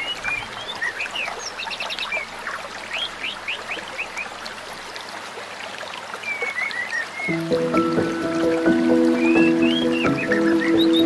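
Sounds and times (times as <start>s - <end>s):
stream running over rocks: 0.0s - 11.0s
bird twittering: 8.5s - 11.0s
short rising bird chirps: 9.1s - 11.0s.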